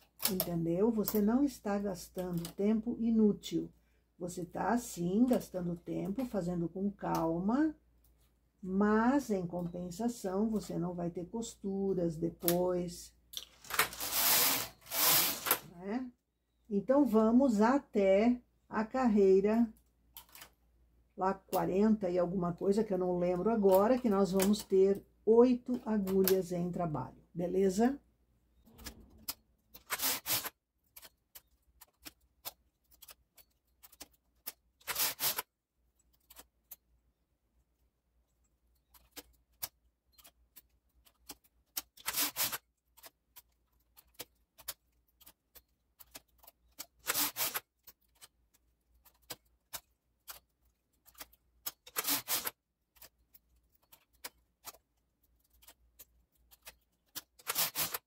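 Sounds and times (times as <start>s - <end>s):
knitting machine carriage sweep: 13.7s - 15.7s, 28.7s - 30.5s, 34.8s - 35.4s, 42.0s - 42.6s, 47.0s - 47.6s, 51.8s - 52.6s, 57.4s - 58.0s.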